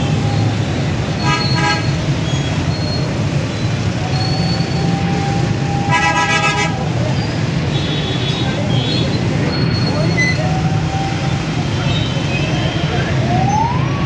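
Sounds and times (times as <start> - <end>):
road traffic: 0.0 - 14.0
vehicle horn blasts: 1.2 - 2.0, 5.9 - 6.7.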